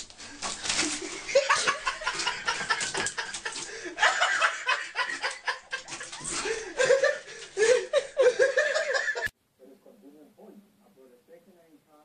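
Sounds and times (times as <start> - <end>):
people laughing: 0.8 - 9.3.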